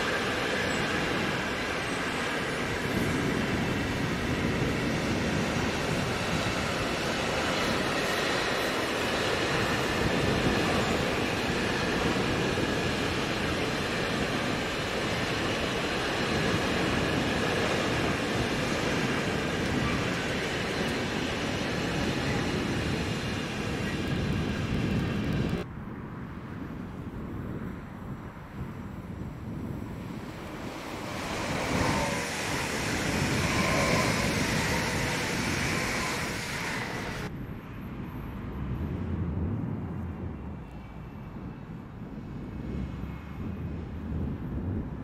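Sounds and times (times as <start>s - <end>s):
train wheels rumbling on rails: 0.0s - 25.7s, 28.0s - 45.0s.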